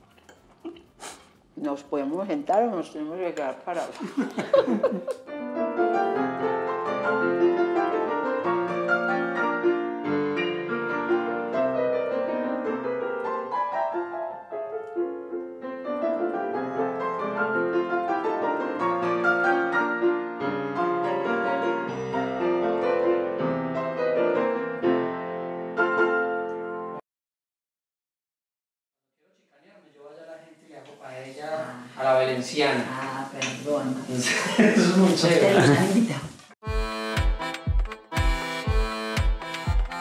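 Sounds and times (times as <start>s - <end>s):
solo grand piano: 5.3s - 27.0s.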